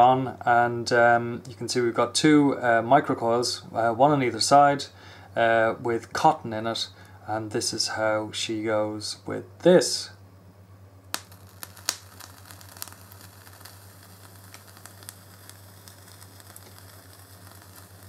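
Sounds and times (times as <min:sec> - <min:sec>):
vape coil sizzling and popping: 0:11.1 - 0:18.0.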